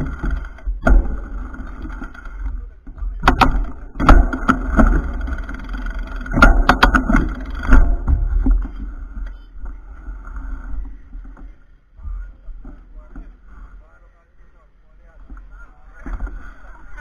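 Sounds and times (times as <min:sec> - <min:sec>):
sharp clicks and knocks: 0:00.0 - 0:09.8.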